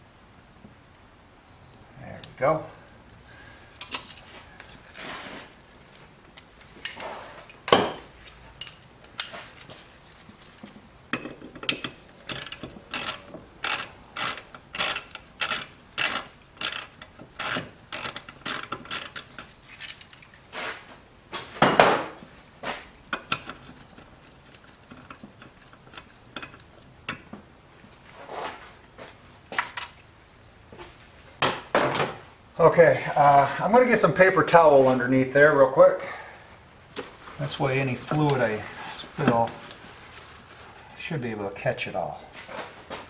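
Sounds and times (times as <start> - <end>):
socket ratchet clicking: 11.8 - 20.1.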